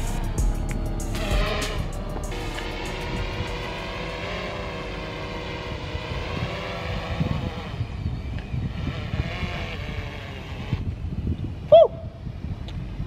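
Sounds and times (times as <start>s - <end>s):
drone propellers whining: 0.0s - 13.0s
wind rumble on microphone: 0.0s - 13.0s.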